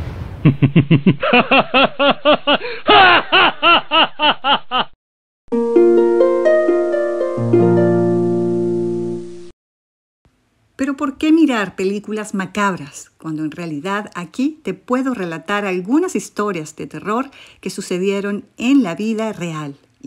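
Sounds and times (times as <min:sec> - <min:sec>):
boom: 0:00.0 - 0:01.2
cackling laugh: 0:00.4 - 0:05.0.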